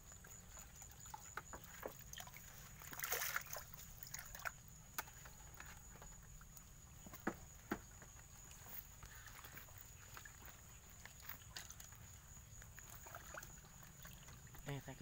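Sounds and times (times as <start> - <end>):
water sloshing in bucket: 0.0 - 15.0
water splash: 0.8 - 4.6, 12.8 - 14.9.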